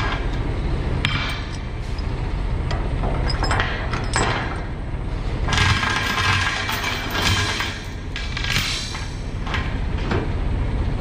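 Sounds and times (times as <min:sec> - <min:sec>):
steel chain rattling and clinking: 0:03.2 - 0:04.6, 0:05.5 - 0:09.0.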